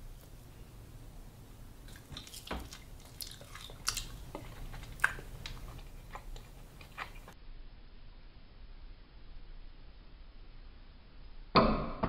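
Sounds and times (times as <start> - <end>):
man chewing food: 1.8 - 7.4.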